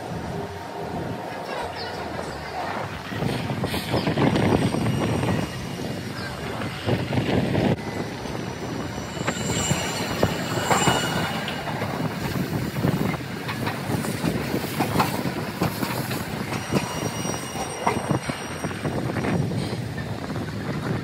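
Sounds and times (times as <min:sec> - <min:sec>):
wheels squealing on curve: 0:08.6 - 0:13.1, 0:16.2 - 0:18.8.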